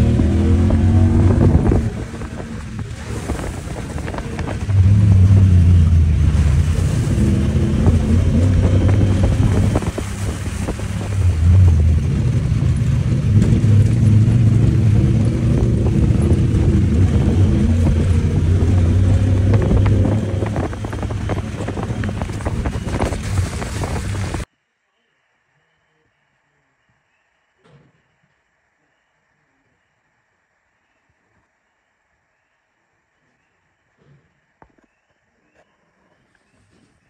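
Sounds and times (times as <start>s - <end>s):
utility vehicle engine revving: 0.0s - 24.5s
wind buffeting microphone: 0.0s - 24.5s.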